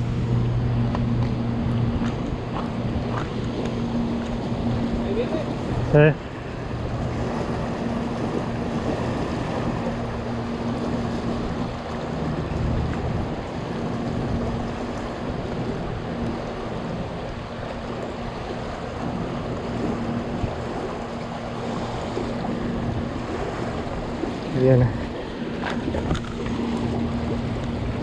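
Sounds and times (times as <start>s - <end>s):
low steady hum: 0.0s - 28.0s
water rushing through floodgates: 0.0s - 28.0s.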